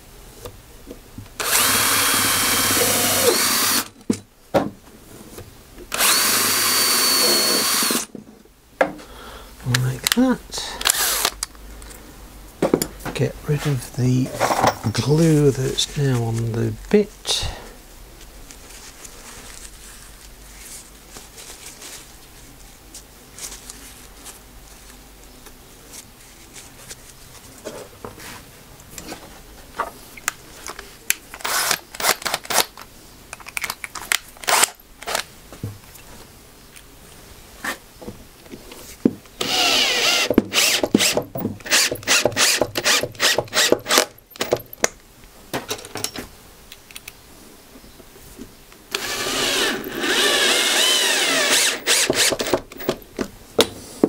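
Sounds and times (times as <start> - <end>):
scraping glue off drill bit: 6.0 - 8.0, 39.4 - 44.0, 48.9 - 52.6.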